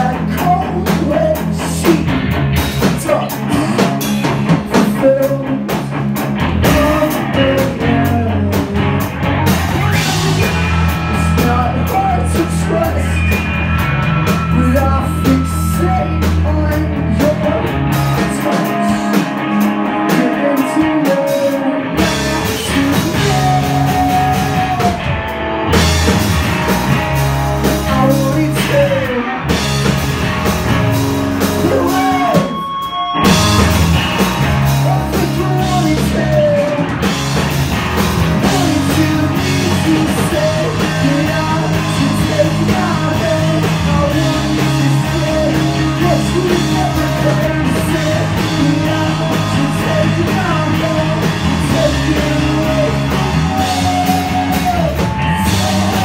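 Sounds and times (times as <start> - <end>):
rock band playing live: 0.0 - 56.0.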